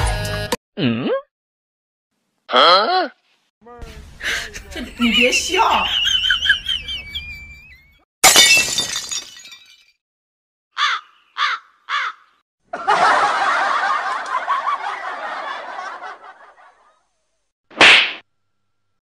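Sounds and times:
sharp smack: 0:17.7 - 0:18.2.

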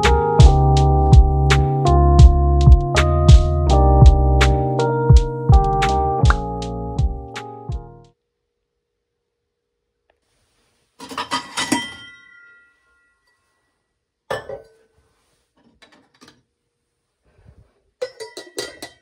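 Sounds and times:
glass and cutlery clinking: 0:11.0 - 0:13.4, 0:14.3 - 0:14.8, 0:18.0 - 0:19.0.

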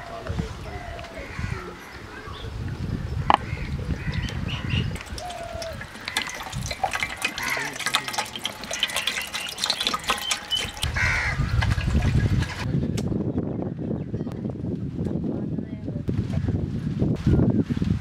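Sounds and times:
water pouring into metal pot: 0:04.8 - 0:11.0.

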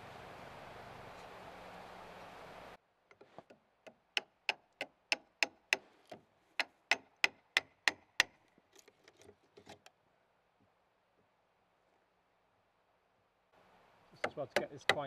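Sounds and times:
hammer striking chisel: 0:03.9 - 0:09.8, 0:14.2 - 0:15.0.

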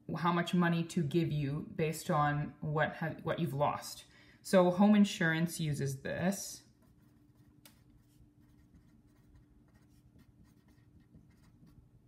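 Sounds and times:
low steady hum: 0:00.0 - 0:12.0
pen scratching on paper: 0:06.8 - 0:11.8.

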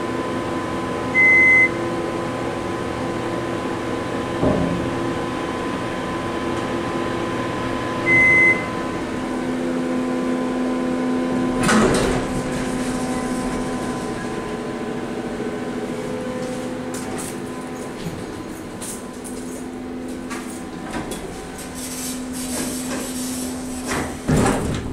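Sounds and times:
ventilation fan hum: 0:00.0 - 0:24.9
short electronic beep: 0:08.1 - 0:08.7
elevator doors sliding open: 0:11.3 - 0:14.6, 0:20.1 - 0:24.9.

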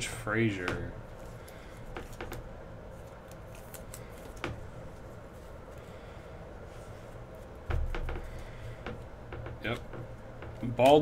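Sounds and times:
steady room hum: 0:00.0 - 0:11.0
cards handled clicking and snapping: 0:01.2 - 0:04.7.

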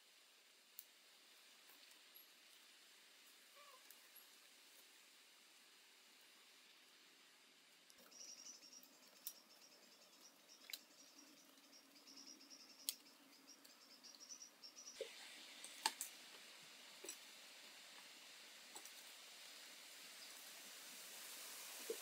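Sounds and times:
soft hiss: 0:00.0 - 0:22.0
high chirping: 0:08.0 - 0:15.1.

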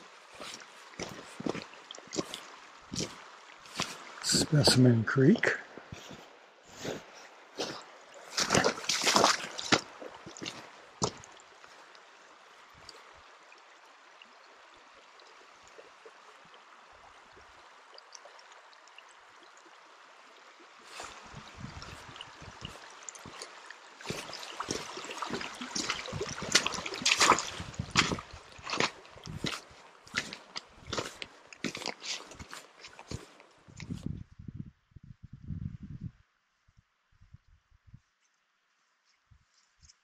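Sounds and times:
creek babbling: 0:00.0 - 0:33.7
footsteps on gravel and dry grass: 0:00.4 - 0:04.2, 0:05.8 - 0:11.3, 0:20.9 - 0:33.4.

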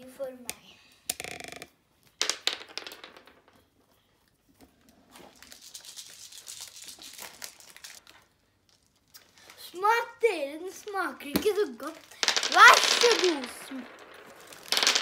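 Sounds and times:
candy packet crinkling: 0:05.2 - 0:09.8, 0:11.8 - 0:15.0.

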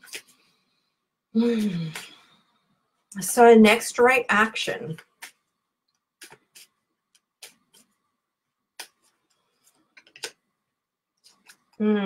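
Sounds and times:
cards clicking and tapping: 0:09.9 - 0:10.4.

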